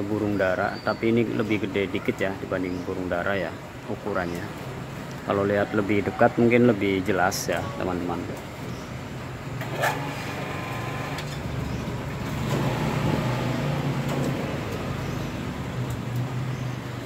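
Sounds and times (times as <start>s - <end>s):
low mechanical hum: 8.3s - 16.2s.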